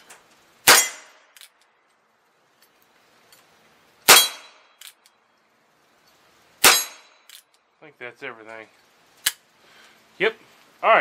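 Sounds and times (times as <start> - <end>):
revolver gunshot: 0.6 - 1.3, 4.1 - 4.8, 6.6 - 7.2
bullet striking steel target: 0.6 - 1.5, 4.1 - 5.0, 6.6 - 7.5.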